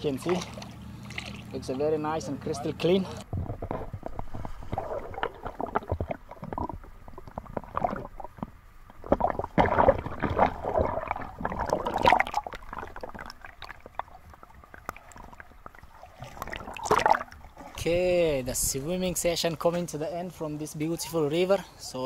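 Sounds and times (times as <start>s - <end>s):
muffled water splashing: 0.0s - 20.0s
gurgling bubbles: 3.3s - 18.2s.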